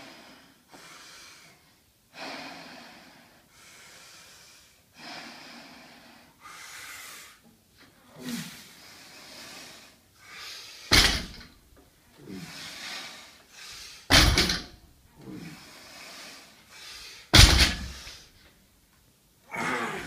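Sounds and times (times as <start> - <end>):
hard breathing: 0.0 - 18.4
barbell dropped on rubber mat: 10.9 - 11.5, 14.1 - 14.8, 17.3 - 18.0.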